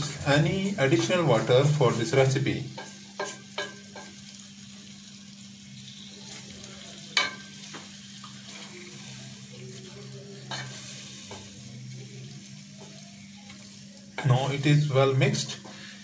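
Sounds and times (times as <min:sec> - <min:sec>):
food sizzling in a pot: 0:00.0 - 0:16.0
spatula knocking on pot: 0:02.7 - 0:04.2
wooden spatula stirring and scraping: 0:07.2 - 0:14.5.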